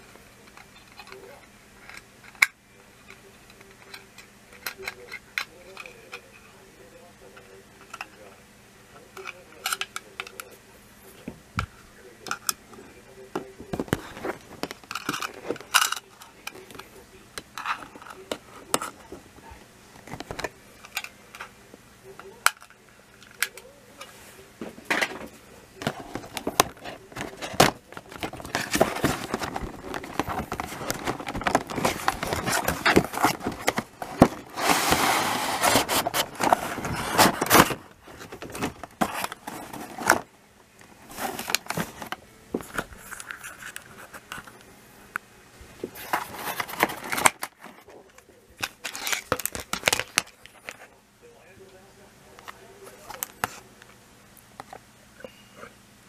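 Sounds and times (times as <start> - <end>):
plastic rail pieces clacking: 14.6 - 16.8
packaging crinkling: 25.8 - 40.2, 48.6 - 50.8
cardboard box being opened: 25.9 - 40.2.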